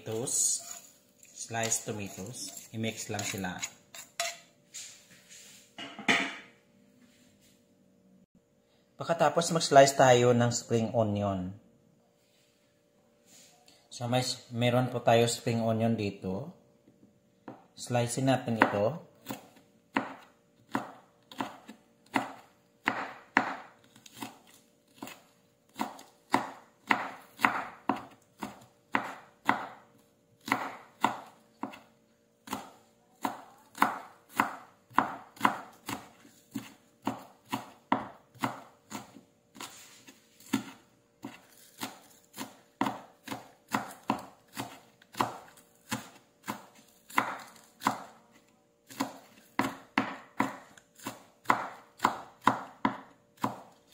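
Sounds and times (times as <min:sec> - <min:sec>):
knife chopping on wooden board: 0:01.6 - 0:04.4, 0:18.5 - 0:53.9.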